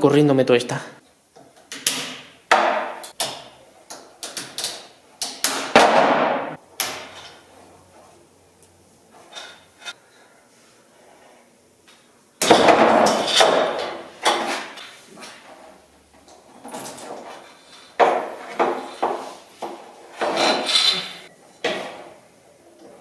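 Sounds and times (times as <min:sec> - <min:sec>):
sharp knocks and clunks: 0:01.8 - 0:03.4, 0:12.4 - 0:14.7, 0:18.0 - 0:20.5.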